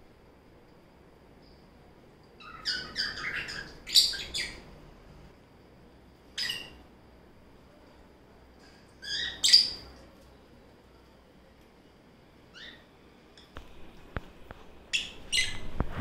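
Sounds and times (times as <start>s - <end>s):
lovebirds chirping: 2.4s - 4.8s, 6.3s - 6.9s, 8.9s - 10.0s, 14.9s - 15.7s.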